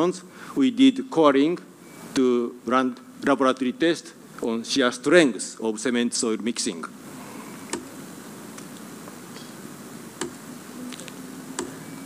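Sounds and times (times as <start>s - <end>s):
faint low hum: 0.0s - 12.0s
steady hiss: 0.0s - 12.0s.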